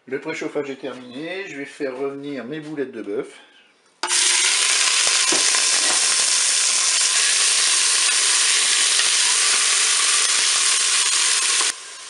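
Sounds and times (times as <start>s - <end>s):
meatballs sizzling in hot oil: 4.0s - 12.0s.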